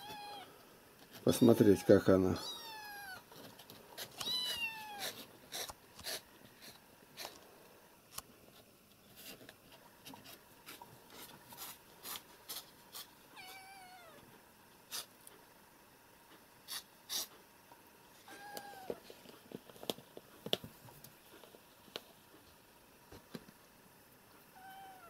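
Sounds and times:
kitten mewing: 4.2s - 5.7s, 13.4s - 14.2s, 24.6s - 25.0s.

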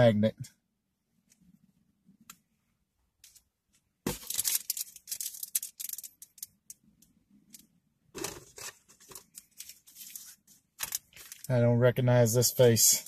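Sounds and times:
plastic packaging crinkling and tearing: 4.2s - 6.4s, 8.2s - 11.5s.

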